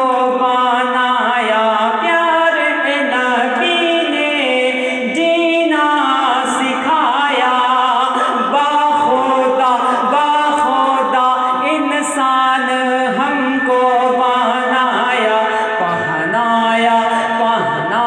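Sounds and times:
man singing unaccompanied: 0:08.6 - 0:18.0.

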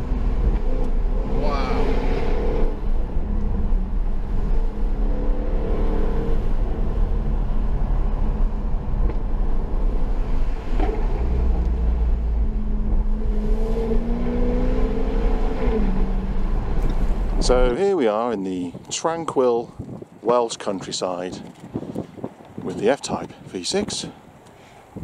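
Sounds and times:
car engine under throttle: 0:00.0 - 0:17.8
road and tyre noise: 0:00.0 - 0:25.0.

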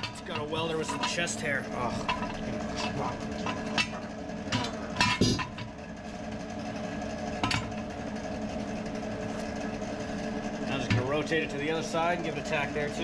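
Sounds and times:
metal clinks and knocks: 0:00.0 - 0:05.8
steady mechanical hum: 0:00.0 - 0:13.0.

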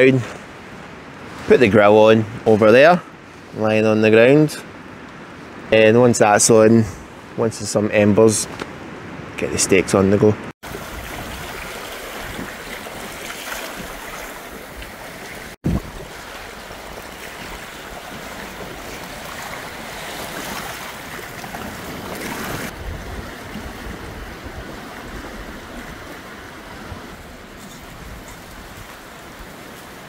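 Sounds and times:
gale-force wind: 0:00.0 - 0:30.0
wind buffeting microphone: 0:10.3 - 0:30.0
waves breaking on rocky shore: 0:10.6 - 0:30.0.

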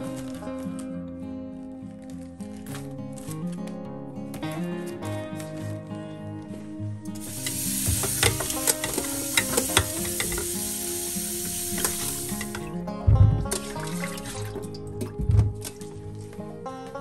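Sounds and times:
tomatoes knocking against bowl: 0:07.3 - 0:10.6
tap running into plastic bowl: 0:07.3 - 0:10.7, 0:11.4 - 0:13.6.

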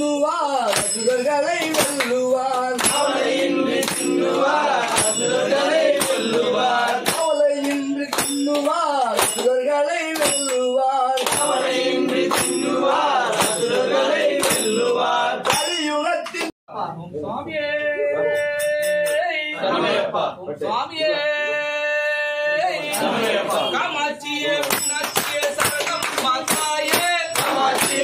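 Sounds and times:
man singing: 0:00.0 - 0:03.1, 0:07.0 - 0:11.6, 0:17.3 - 0:19.6, 0:20.6 - 0:28.0
struck percussion ringing: 0:00.7 - 0:15.8, 0:24.7 - 0:28.0.

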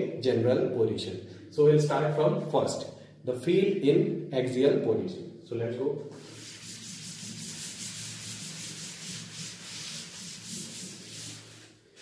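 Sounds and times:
chalkboard being wiped: 0:06.1 - 0:12.0.

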